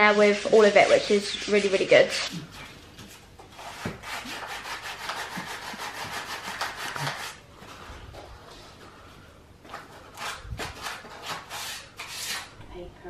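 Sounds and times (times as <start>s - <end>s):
sandpaper scratching wood: 0.0s - 2.3s, 3.6s - 7.4s, 10.1s - 12.5s.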